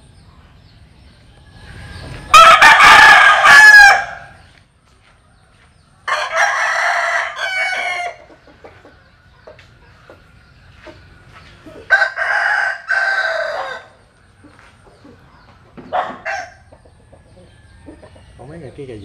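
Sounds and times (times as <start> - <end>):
rooster crowing: 2.3 - 4.4, 6.0 - 8.3, 11.8 - 14.0.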